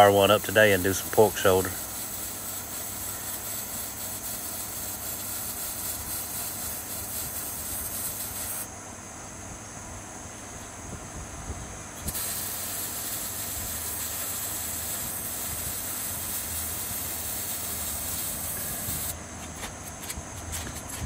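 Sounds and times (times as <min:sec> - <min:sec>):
welding arc hissing: 0:00.0 - 0:08.7, 0:12.0 - 0:19.2.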